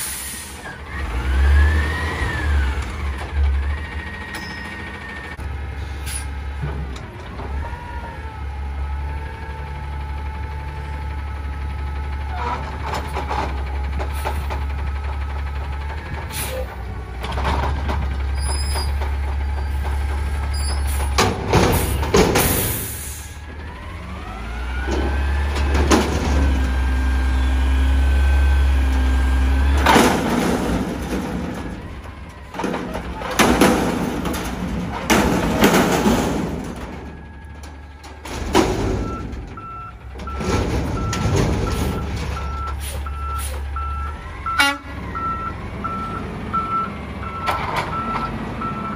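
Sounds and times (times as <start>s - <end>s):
garbage truck engine revving: 0.0s - 48.9s
loud clanks and bangs: 17.1s - 23.0s, 24.7s - 27.0s, 28.9s - 43.7s.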